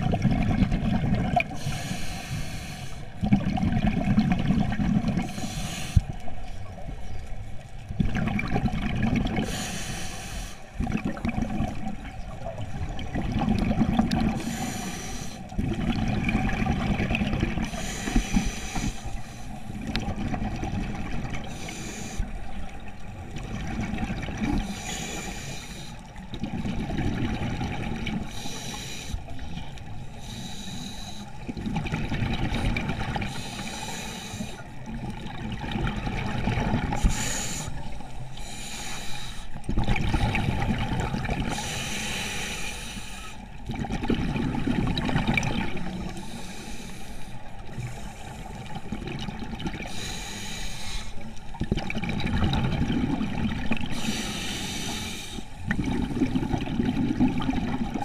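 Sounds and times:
exhaled bubbles rumbling: 0.0 - 1.7, 3.1 - 5.5, 6.1 - 9.6, 10.8 - 14.8, 15.4 - 21.7, 22.3 - 25.0, 26.1 - 28.5, 31.3 - 33.6, 34.6 - 38.3, 39.6 - 41.8, 43.5 - 46.3, 47.5 - 50.1, 51.4 - 54.3, 55.6 - 58.0
regulator inhale hiss: 1.5 - 3.2, 5.2 - 6.3, 9.4 - 10.8, 14.3 - 15.6, 17.6 - 19.8, 21.4 - 22.5, 24.6 - 26.2, 28.3 - 31.4, 33.3 - 34.8, 36.9 - 39.6, 41.5 - 43.5, 46.0 - 48.8, 49.8 - 51.4, 53.8 - 55.7.

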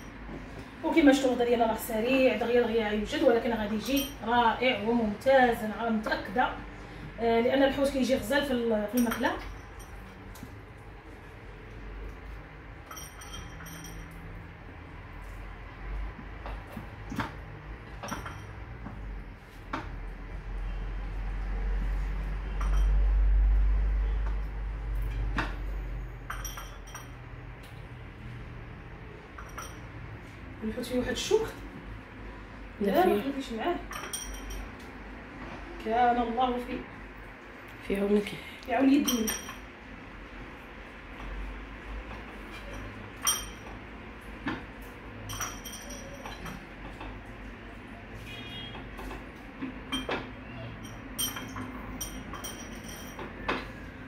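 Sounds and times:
ceramic bowl and plate clinking: 8.9 - 10.2, 12.8 - 14.3, 18.0 - 18.6, 22.5 - 23.0, 26.3 - 27.2, 29.4 - 30.0, 33.9 - 34.8, 39.0 - 39.7, 42.5 - 43.8, 45.2 - 46.7, 49.9 - 53.7.

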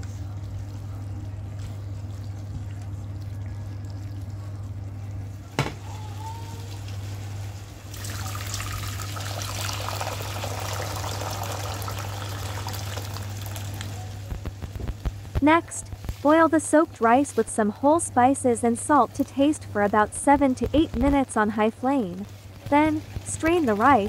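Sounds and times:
steady low hum: 0.0 - 24.0
water pouring into metal pot: 7.9 - 13.9.

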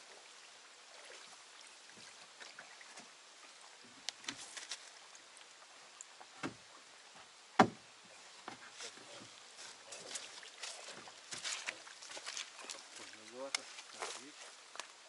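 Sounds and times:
sharp loud knock: 7.6 - 7.8.

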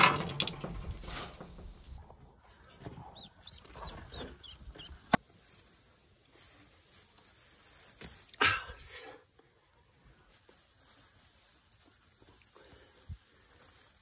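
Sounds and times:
rustling and handling noise: 0.1 - 8.4, 9.8 - 14.0
ducklings peeping: 2.8 - 5.2.

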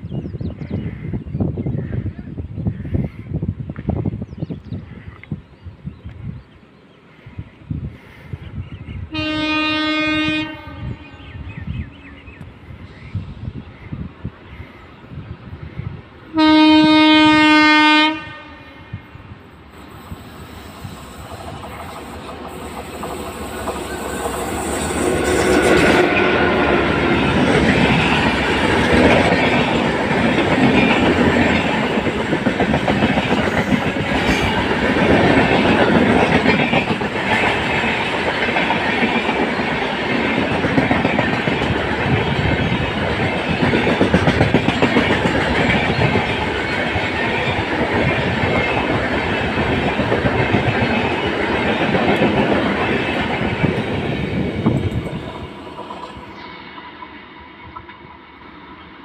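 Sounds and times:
train passing at high speed: 0.0 - 59.0
wheels clacking over rail joints: 21.3 - 56.2.

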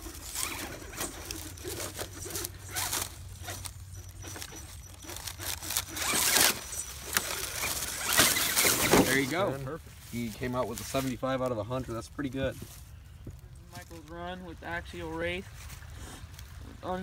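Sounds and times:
toy car tyres scraping rocks: 0.0 - 12.8.

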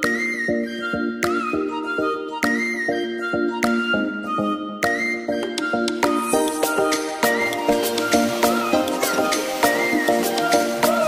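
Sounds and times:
melody over steady beat: 6.2 - 11.0.

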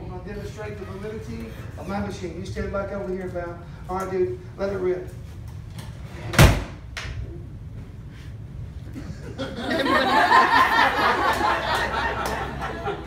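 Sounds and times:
audience laughing: 9.2 - 13.0.

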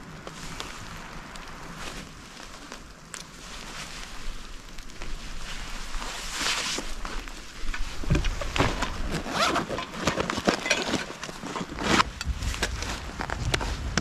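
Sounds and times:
fabric stuff sacks rustling: 1.7 - 14.0
backpack set down on rock: 8.0 - 13.0.

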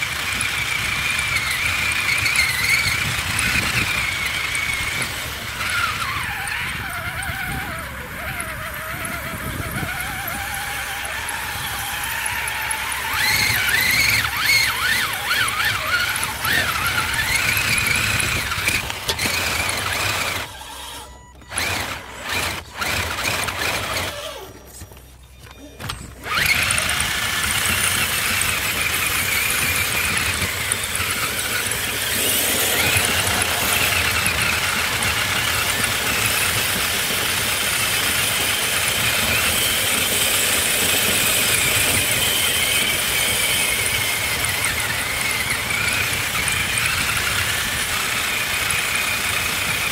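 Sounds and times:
electric motor whining: 0.0 - 49.9.

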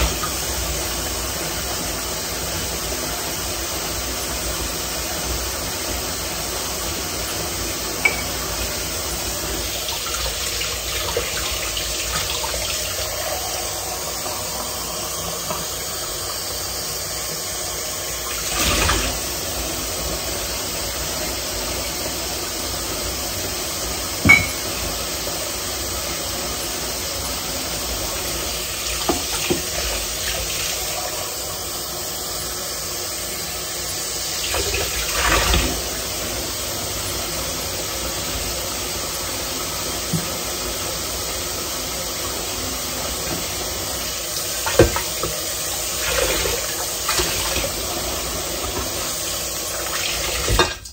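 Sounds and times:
tap water running into sink: 0.0 - 50.9
dishes clinking and knocking: 8.0 - 8.4, 24.2 - 24.8.

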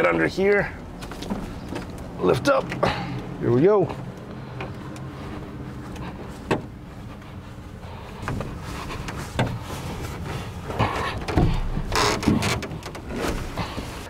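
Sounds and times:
steady low hum: 0.0 - 14.0
footsteps on grass: 3.2 - 10.9
canoe hull knocks and creaks: 8.2 - 14.0.

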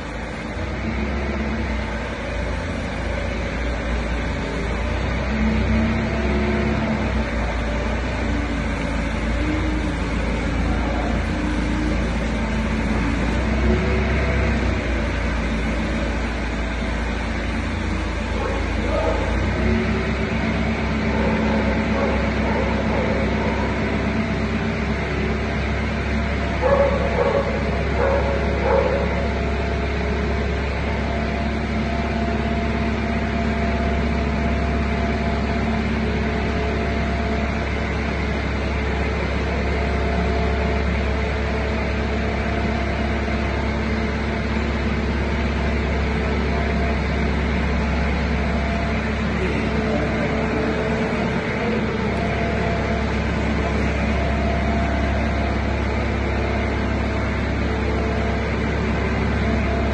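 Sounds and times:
slotting machine hum: 47.2 - 59.9.

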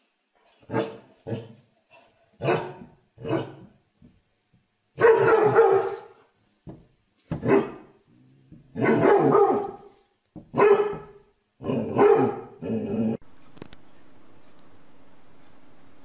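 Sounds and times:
faint steady hum: 0.0 - 16.0
dog barking: 0.7 - 1.6, 2.4 - 3.7, 5.0 - 6.3, 7.4 - 8.0, 8.7 - 13.0.

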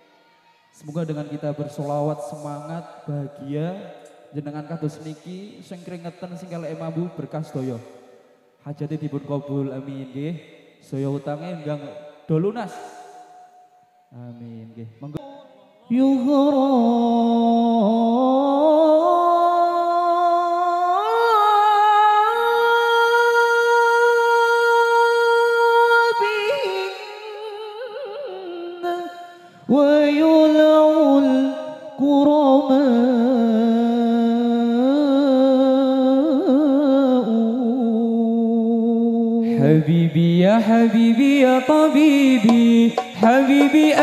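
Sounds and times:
man singing: 14.1 - 44.0.

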